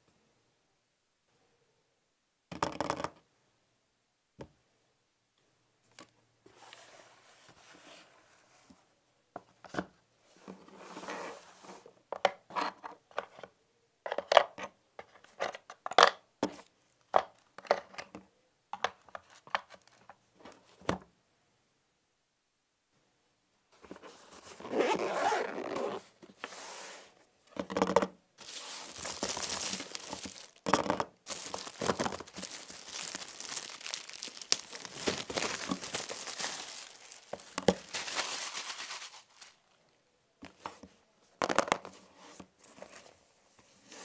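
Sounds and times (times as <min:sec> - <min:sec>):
soft rustling: 0:28.4 - 0:30.6, 0:31.2 - 0:40.0.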